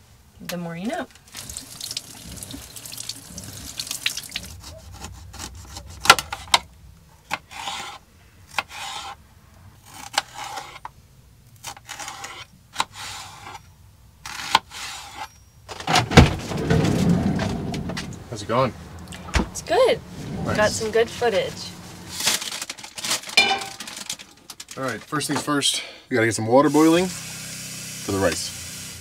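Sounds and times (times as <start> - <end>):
faucet running: 1.3 - 4.5.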